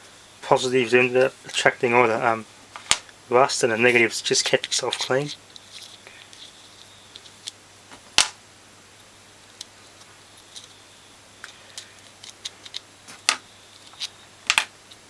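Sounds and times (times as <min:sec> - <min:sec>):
small parts clicking and tapping: 0:03.9 - 0:07.6, 0:09.6 - 0:10.8, 0:11.4 - 0:15.0.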